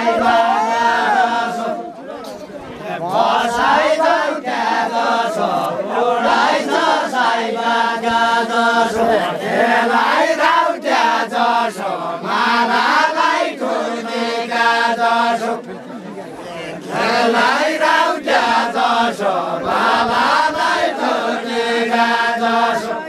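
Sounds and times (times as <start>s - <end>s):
group chanting folk song: 0.0s - 2.2s, 2.8s - 15.8s, 16.4s - 23.0s.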